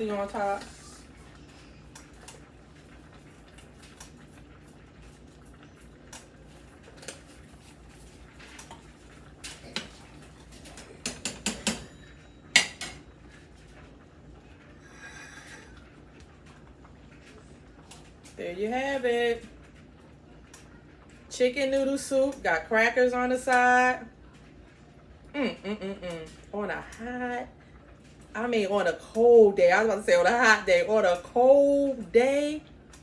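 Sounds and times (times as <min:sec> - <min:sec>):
dishes clinking on stone counter: 0:11.0 - 0:13.0.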